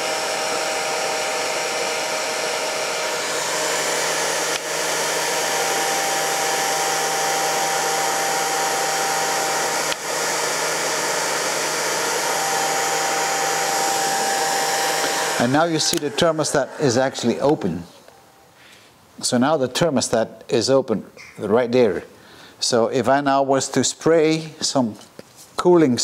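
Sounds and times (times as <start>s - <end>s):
heat gun blowing air: 0.0s - 18.2s.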